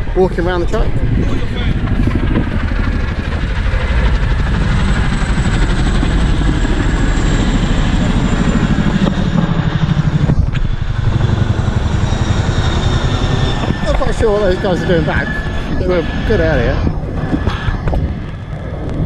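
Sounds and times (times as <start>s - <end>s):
helicopter rotor chop: 0.0s - 19.0s.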